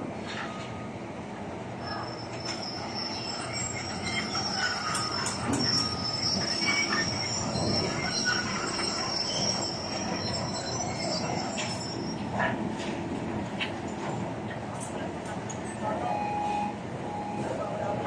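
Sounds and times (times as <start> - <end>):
high-pitched metallic squeal: 1.8 - 12.4.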